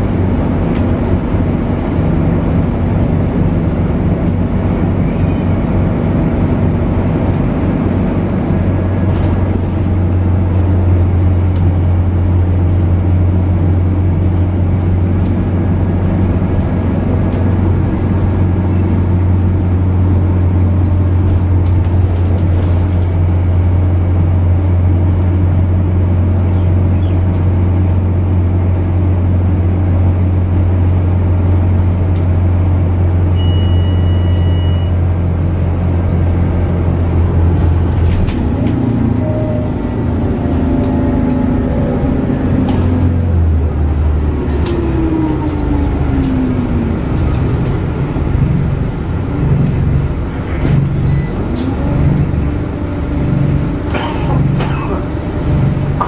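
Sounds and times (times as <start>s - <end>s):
bus engine drone: 0.0s - 56.0s
road rumble: 0.0s - 56.0s
short electronic beep: 33.4s - 35.0s, 51.0s - 51.4s.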